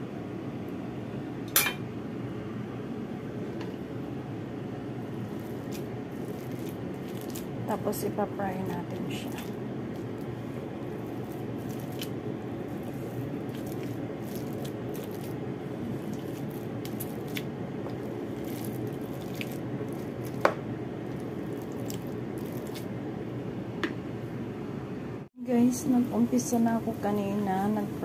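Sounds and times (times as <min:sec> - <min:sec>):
spatula squishing soft mash: 0:04.9 - 0:23.0.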